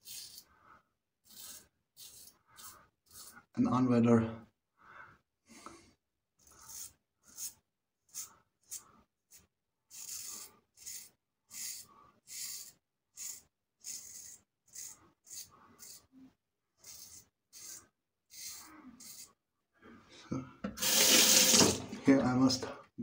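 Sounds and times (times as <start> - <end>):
tap water running: 20.6 - 22.2.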